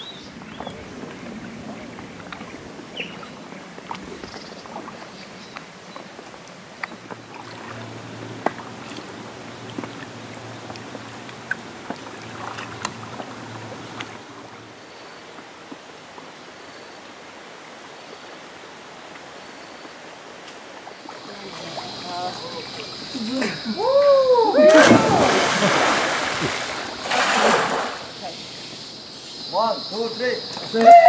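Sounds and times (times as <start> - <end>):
water and paddling: 0.0 - 30.9
light knocks and splashes: 24.7 - 28.1.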